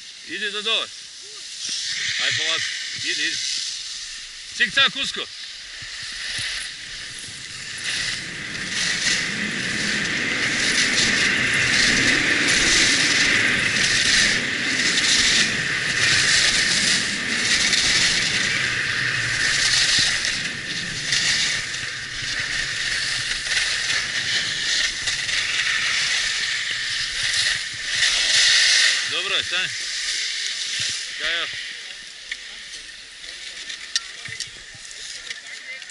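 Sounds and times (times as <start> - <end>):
skis scraping over packed snow: 0.0 - 35.9
wind rumble on microphone: 5.7 - 29.1.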